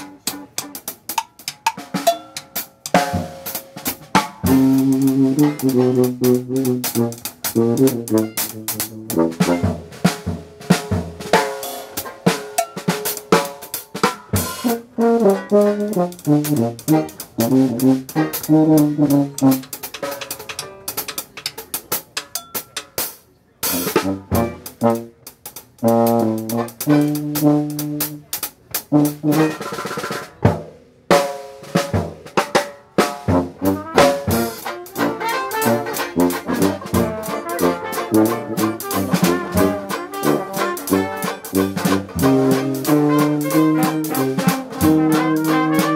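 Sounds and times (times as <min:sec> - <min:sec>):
tuba: 0:00.0 - 0:01.2, 0:02.9 - 0:21.3, 0:23.6 - 0:45.9
trombone: 0:00.0 - 0:21.8, 0:23.6 - 0:45.9
jazz band playing: 0:00.0 - 0:45.9
sharp drum hits: 0:02.9 - 0:07.2
banjo: 0:33.4 - 0:45.9.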